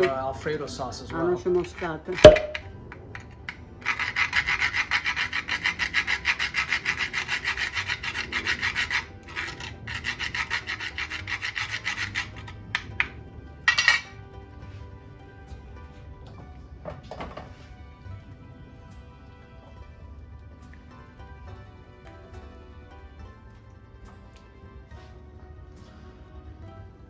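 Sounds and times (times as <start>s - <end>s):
nutmeg grated on metal grater: 3.8s - 12.5s.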